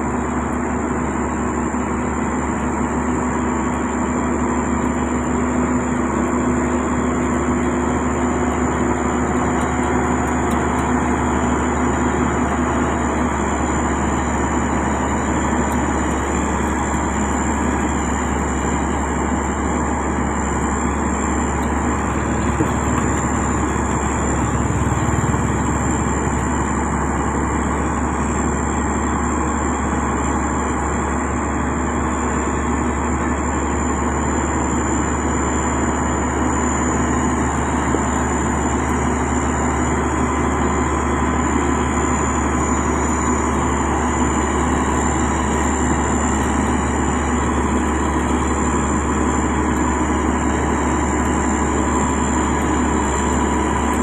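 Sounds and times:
diesel engine running: 0.0s - 54.0s
steady high whine: 0.0s - 54.0s
low hum: 1.9s - 29.2s.

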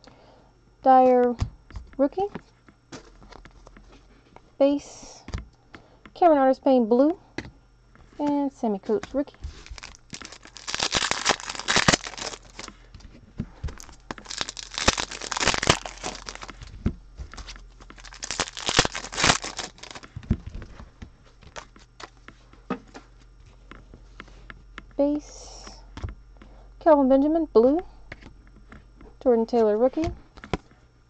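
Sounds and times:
foil wrapper tearing and crinkling: 9.5s - 12.7s, 13.7s - 16.7s, 17.3s - 20.3s.

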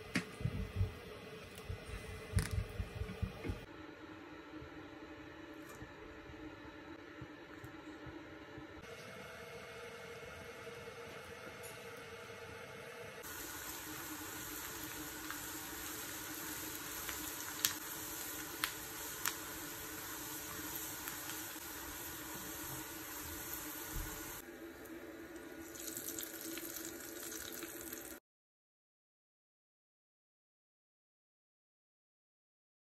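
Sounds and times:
onions sizzling in a frying pan: 13.2s - 24.4s, 25.6s - 28.2s.

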